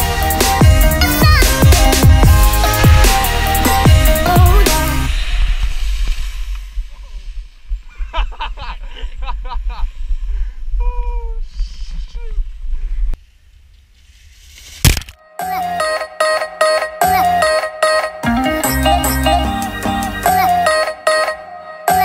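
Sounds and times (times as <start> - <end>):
sharp pop: 14.8 - 15.2.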